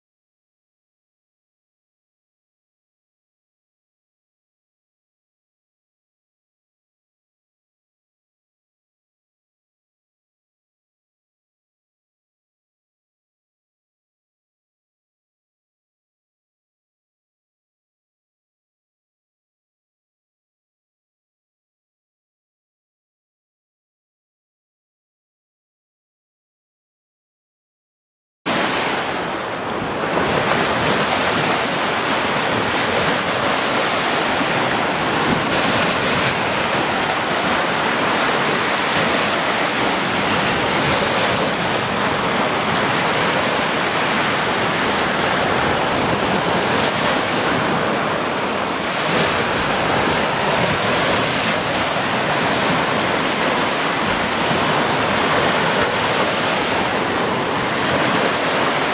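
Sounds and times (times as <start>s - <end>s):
waves washing onto beach: 28.5s - 58.9s.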